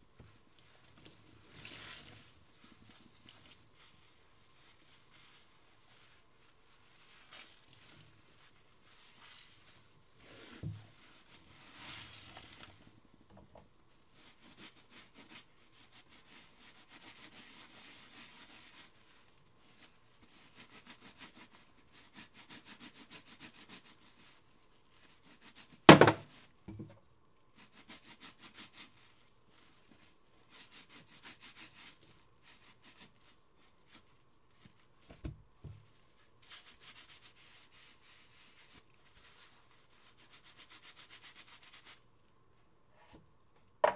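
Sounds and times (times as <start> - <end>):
sponge scrubbing steel sink: 14.1 - 26.5, 27.5 - 35.2, 35.9 - 42.0
loud sharp knock: 25.9 - 26.2.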